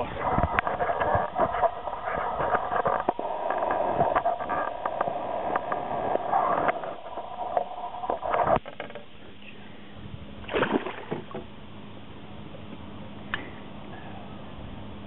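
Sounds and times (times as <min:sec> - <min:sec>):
sharp splashes and knocks: 0:10.4 - 0:11.5
water sloshing against boat: 0:10.4 - 0:11.6.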